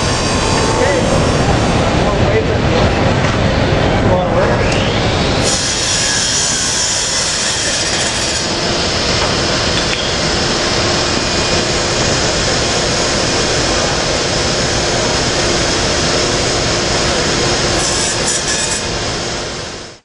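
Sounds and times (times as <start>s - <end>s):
faint constant hum: 0.0s - 20.0s
tile saw running: 5.4s - 19.6s.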